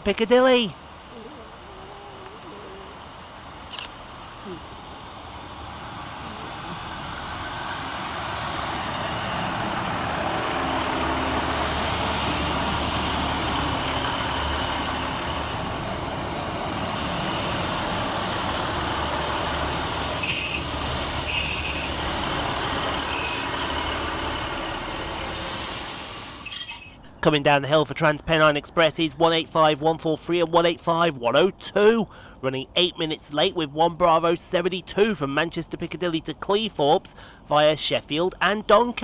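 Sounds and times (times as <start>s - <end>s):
diesel engines rumbling: 0.0s - 39.0s
wheels on rail: 1.6s - 27.1s
high-pitched wheel squeals: 19.5s - 24.6s, 26.0s - 27.0s.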